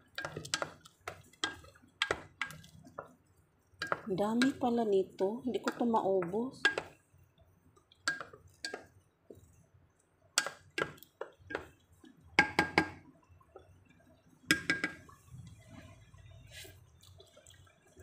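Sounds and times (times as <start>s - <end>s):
wooden spoon clinking on steel pot: 0.0s - 3.2s, 3.8s - 7.0s, 7.8s - 9.4s, 10.4s - 11.8s, 12.4s - 13.0s, 14.5s - 15.1s.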